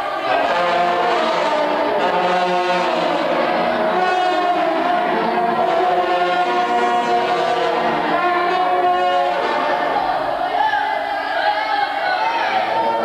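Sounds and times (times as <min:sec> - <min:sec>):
trombone ensemble chords: 0:00.0 - 0:10.6.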